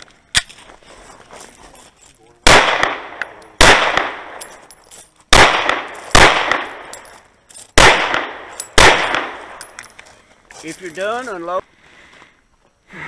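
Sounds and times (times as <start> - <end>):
pistol shots with echo: 2.4 - 4.5, 5.3 - 7.1, 7.8 - 9.8.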